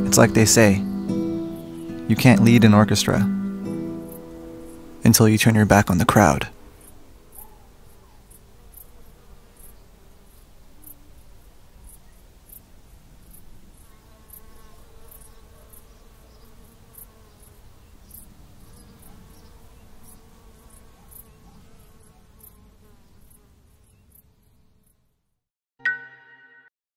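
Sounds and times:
wavering buzz: 0.0 - 5.1
high insect chirps: 0.0 - 25.0.

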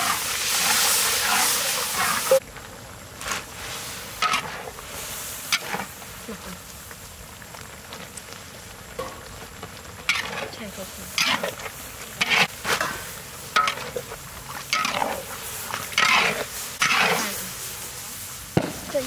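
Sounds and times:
metal spatula scraping wok: 0.0 - 2.4, 4.2 - 4.8, 5.5 - 5.9, 10.1 - 17.7
food sizzling in wok: 0.0 - 19.0.

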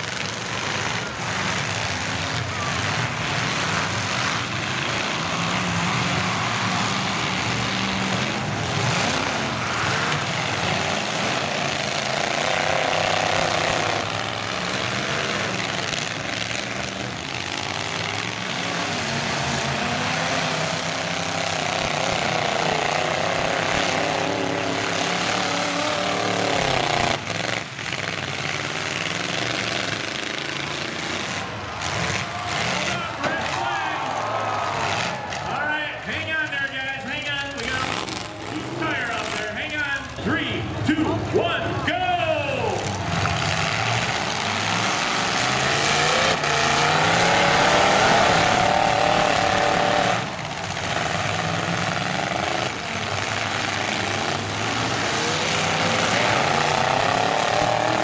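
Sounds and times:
trucks crashing together: 0.0 - 41.9, 42.6 - 58.0
truck engines revving hard: 0.0 - 58.0.

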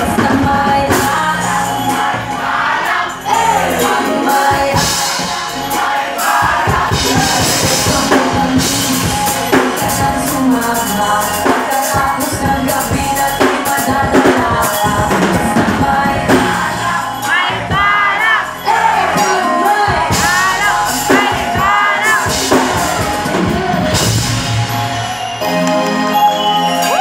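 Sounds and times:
woman singing into microphone: 0.0 - 2.2, 6.7 - 23.9
drum kit: 0.0 - 27.0
live band playing: 0.0 - 27.0.

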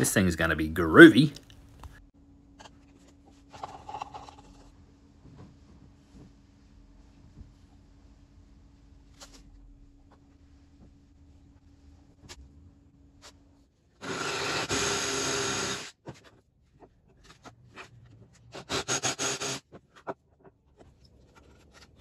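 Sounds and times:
drill boring into wood: 14.0 - 15.9, 18.7 - 19.6.

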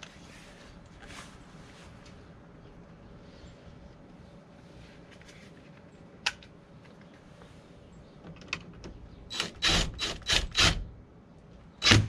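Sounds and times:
impact driver bursts: 9.3 - 10.9, 11.8 - 12.0.

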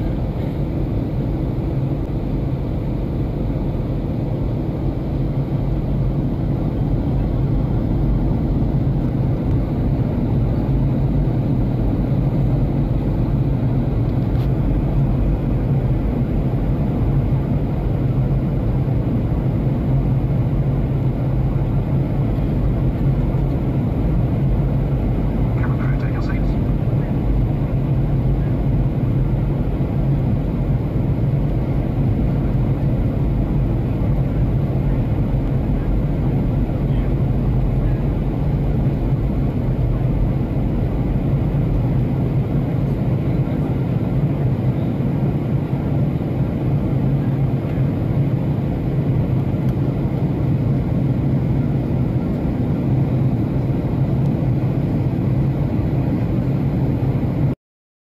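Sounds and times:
airplane cabin engine rumble: 0.0 - 57.6.

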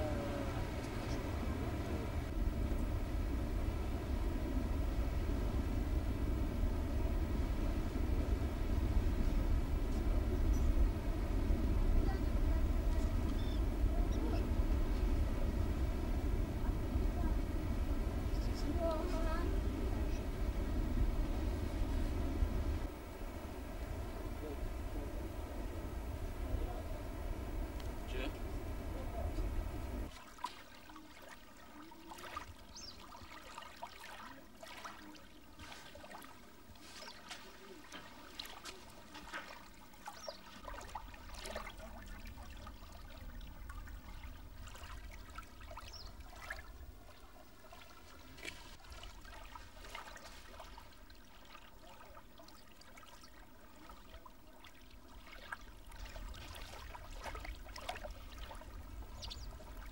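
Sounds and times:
low rumble: 0.0 - 30.1
small waves lapping: 0.0 - 59.9
little water splashes: 30.1 - 59.9.

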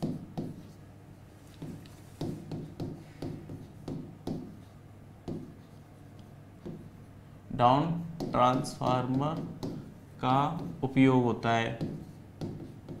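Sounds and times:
pen writing on whiteboard: 0.0 - 0.8, 1.5 - 5.9, 6.6 - 7.0, 8.2 - 10.9, 11.8 - 13.0
faint steady hum: 0.0 - 13.0.

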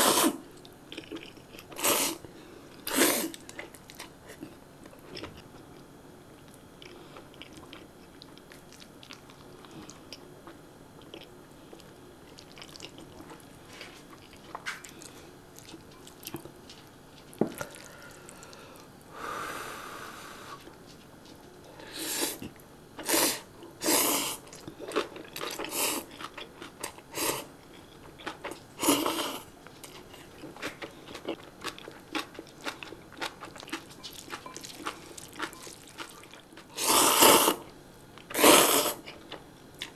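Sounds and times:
person slurping noodles: 0.0 - 0.4, 1.8 - 2.2, 2.9 - 3.4, 23.0 - 24.5, 28.8 - 29.5, 36.7 - 37.6, 38.3 - 39.0
person chewing noodles: 0.0 - 5.8, 6.8 - 18.9, 21.9 - 39.9.

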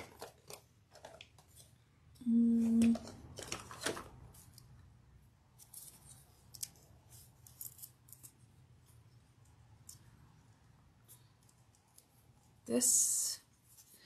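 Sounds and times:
plastic clicks and rustles: 0.0 - 1.8, 2.6 - 4.8.

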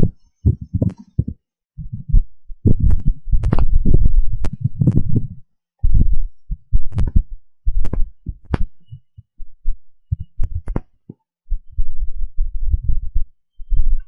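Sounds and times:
wind buffeting microphone: 0.0 - 9.0.

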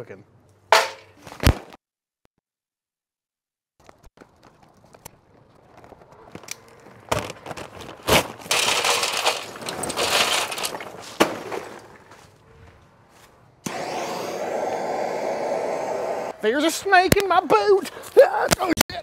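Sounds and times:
charcoal clattering into metal: 8.0 - 12.0.

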